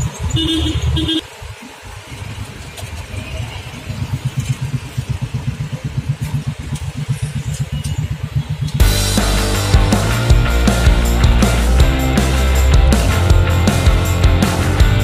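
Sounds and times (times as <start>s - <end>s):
vehicle horn honking: 0.3s - 1.2s
engine idling: 3.8s - 15.0s.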